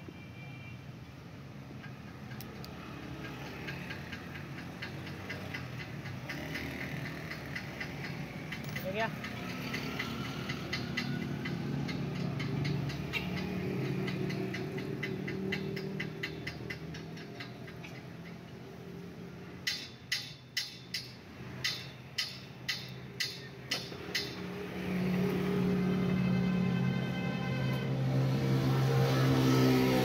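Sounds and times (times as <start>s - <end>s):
sharp metallic clicks: 1.7s - 18.7s, 19.4s - 25.3s.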